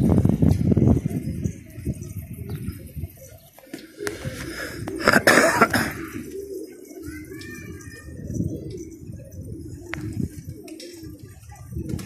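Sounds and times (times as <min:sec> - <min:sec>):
pigeons cooing: 0:00.0 - 0:12.0
wings flapping: 0:03.6 - 0:07.9, 0:08.7 - 0:12.0.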